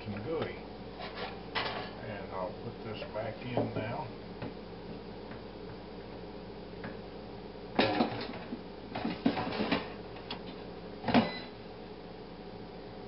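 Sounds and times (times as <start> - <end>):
steady low hum: 0.0 - 13.0
kitchenware clattering: 1.0 - 2.0, 7.8 - 10.0.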